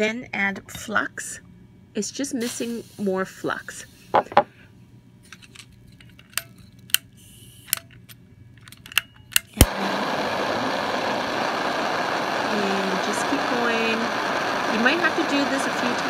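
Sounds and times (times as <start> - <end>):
torch flame hissing: 2.4 - 4.2, 9.6 - 16.0
gas torch lighting click: 8.9 - 9.8.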